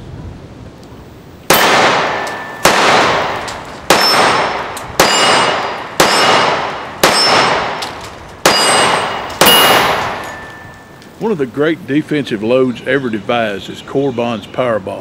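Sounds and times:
pistol shots with echo: 1.5s - 10.8s
thin metallic ring: 8.5s - 11.0s.

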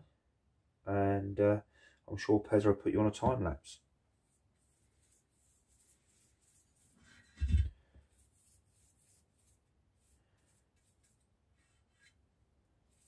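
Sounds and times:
paintbrush strokes on metal: 4.2s - 12.2s.

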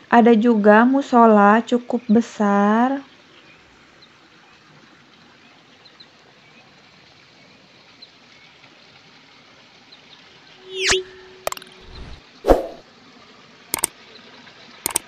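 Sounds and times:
high bird chirps: 10.6s - 12.8s.

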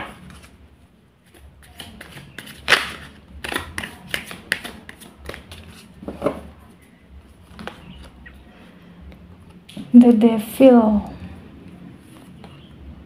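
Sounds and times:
cards being shuffled: 0.0s - 0.6s, 1.2s - 6.4s, 7.4s - 8.2s.

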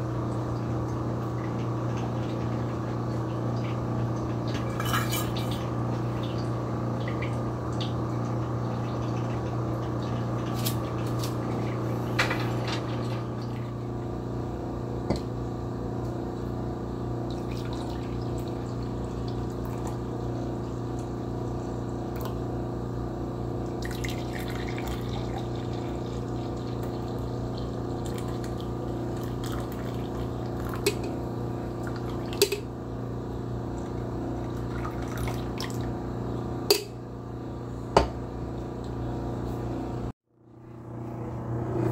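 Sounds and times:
kitchen hum: 0.0s - 41.9s
utensils clinking on cookware: 4.7s - 5.5s.

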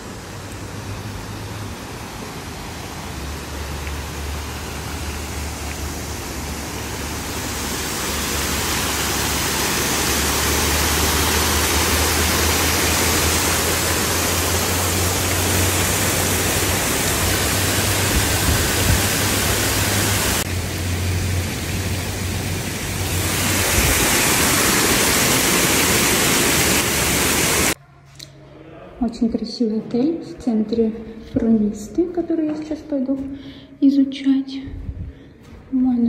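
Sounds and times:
water rushing and splashing: 0.0s - 27.8s.

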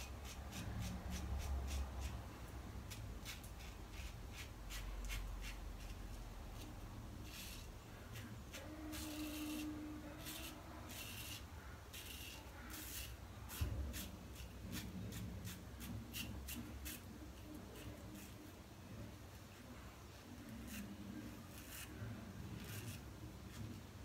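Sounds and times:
razor scraping stubble: 2.9s - 18.5s, 20.4s - 23.8s.

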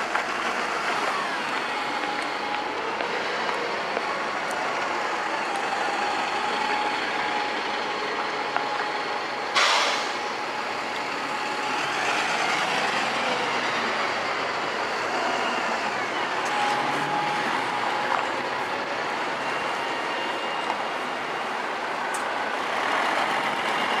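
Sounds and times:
bus engine whine: 0.0s - 24.0s
air brake hiss: 9.6s - 10.2s.

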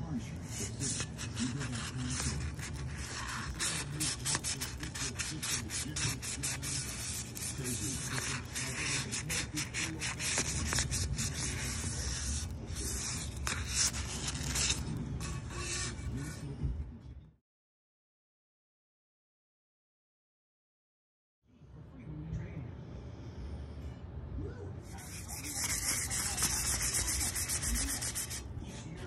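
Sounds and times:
sandpaper rubbing on metal: 0.6s - 14.8s, 25.0s - 28.4s.

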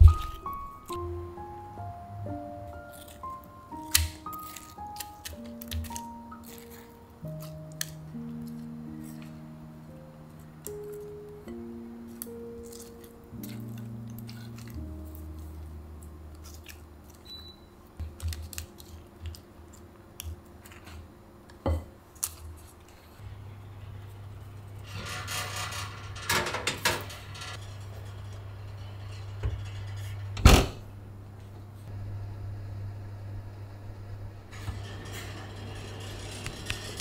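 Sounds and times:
steady low hum: 6.8s - 37.0s
oven door thump: 30.3s - 30.9s.

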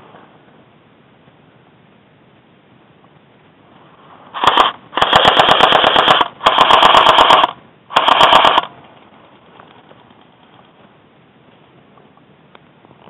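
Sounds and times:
airsoft rifle firing bursts: 4.4s - 8.7s.

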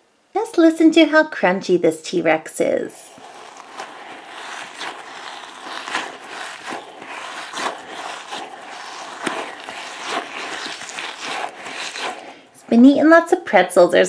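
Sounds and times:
squishy toy crunching: 3.0s - 12.7s.

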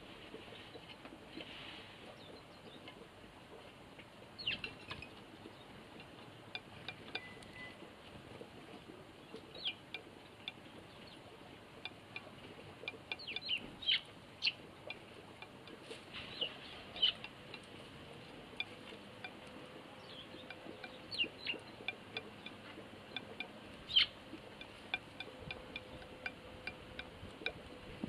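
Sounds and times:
sparrows chirping: 4.4s - 7.8s, 8.8s - 11.3s, 11.9s - 15.0s, 15.8s - 17.7s, 18.6s - 27.0s.

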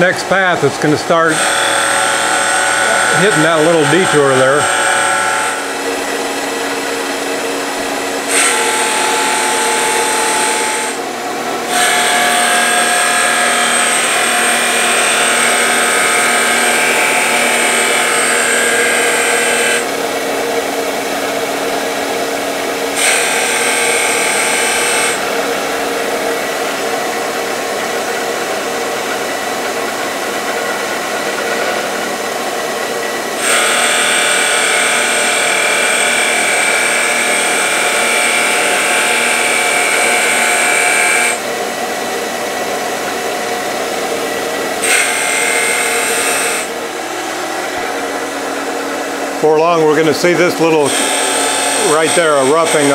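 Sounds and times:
cutter rasping into wood: 0.0s - 11.0s, 11.7s - 32.2s, 50.0s - 52.9s
lathe motor whine: 0.0s - 52.9s.

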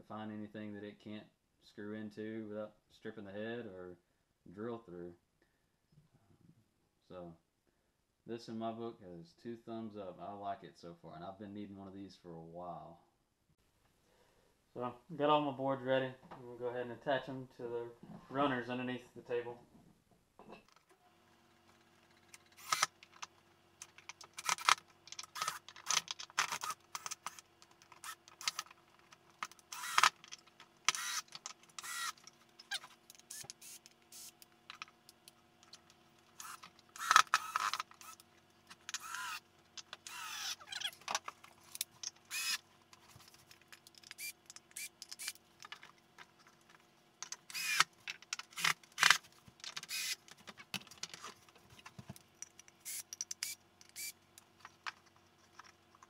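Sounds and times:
boards and screws clattering: 21.6s - 56.0s
cordless drill driving screws: 22.4s - 23.0s, 24.3s - 28.7s, 29.4s - 34.4s, 36.3s - 38.2s, 38.8s - 41.0s, 42.2s - 42.6s, 44.0s - 45.4s, 47.5s - 50.3s, 52.8s - 54.1s.

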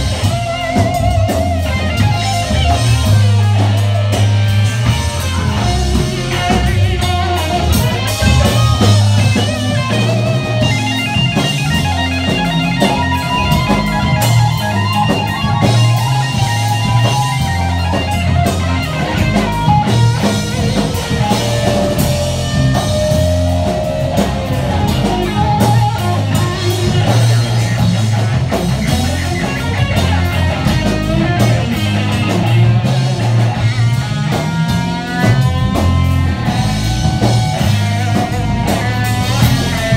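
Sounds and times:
electric guitar lead: 0.0s - 39.9s
rock band playing: 0.0s - 39.9s.

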